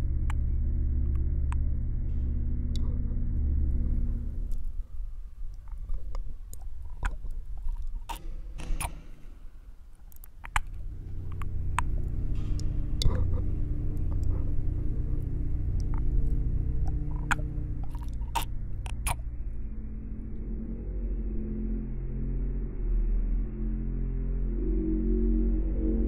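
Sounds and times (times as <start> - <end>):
low drone: 0.0 - 26.0
wet mouth-like clicks and crackles: 4.0 - 9.0, 9.8 - 19.3.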